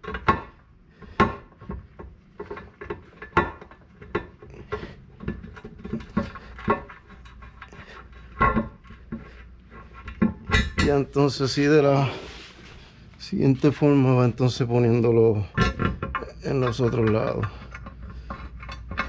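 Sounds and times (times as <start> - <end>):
metal bolts clinking and knocking: 0.0 - 0.6, 1.2 - 11.3, 15.4 - 19.0.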